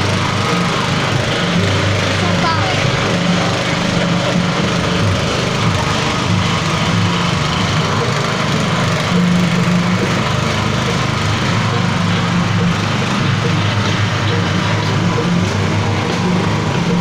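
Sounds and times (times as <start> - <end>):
small petrol engine running: 0.0 - 17.0.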